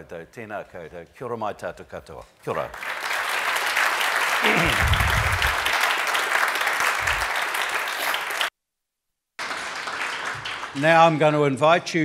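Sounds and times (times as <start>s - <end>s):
audience applauding: 2.7s - 8.5s, 9.4s - 11.6s.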